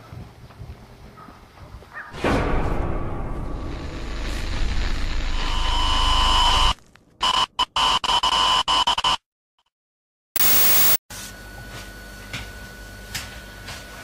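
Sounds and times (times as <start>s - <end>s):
distorted electronic buzz: 3.5s - 9.2s, 10.4s - 11.0s
static hiss burst: 4.0s - 8.3s.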